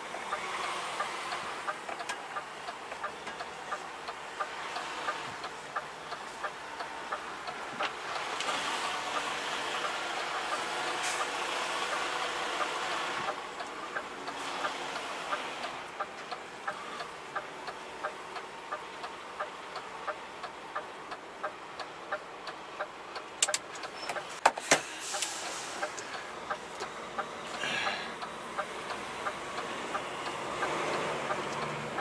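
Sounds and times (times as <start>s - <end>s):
turn-signal relay ticking: 0.0s - 24.3s, 25.1s - 32.0s
truck engine running: 0.0s - 32.0s.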